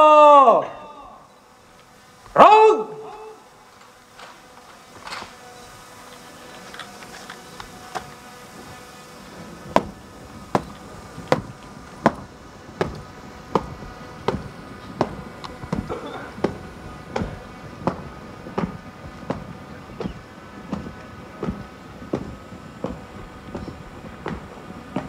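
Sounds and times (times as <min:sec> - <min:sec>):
faint steady hum: 0:00.0 - 0:25.0
sharp rhythmic thumps: 0:07.7 - 0:25.0.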